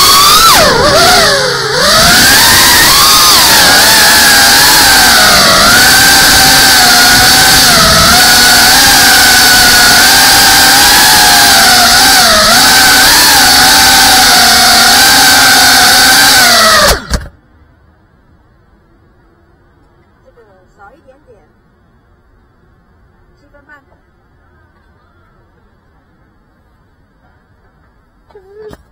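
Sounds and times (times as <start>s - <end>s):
drone motors whining: 0.0s - 17.4s.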